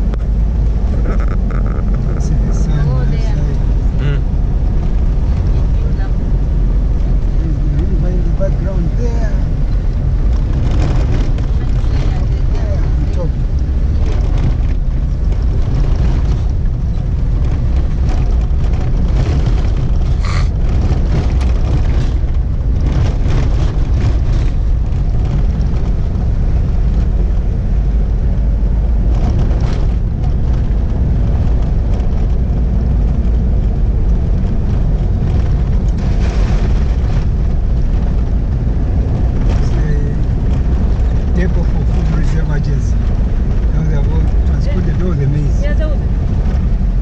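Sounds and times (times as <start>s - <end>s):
vehicle engine and road rumble: 0.0s - 47.0s.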